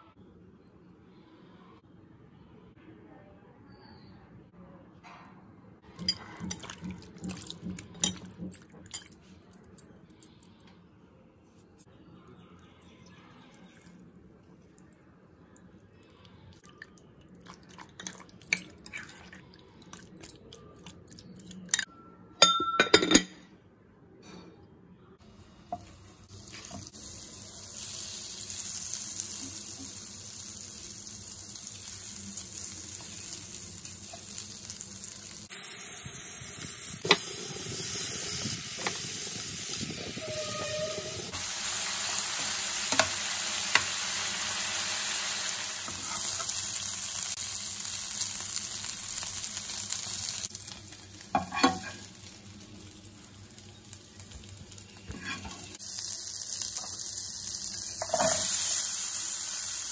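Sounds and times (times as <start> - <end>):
chicken frying: 5.8 - 9.3, 25.2 - 59.9
utensils clinking on bowl: 5.9 - 10.5
butter sizzling in frying pan: 25.6 - 59.9
spatula scraping pan: 55.1 - 55.7.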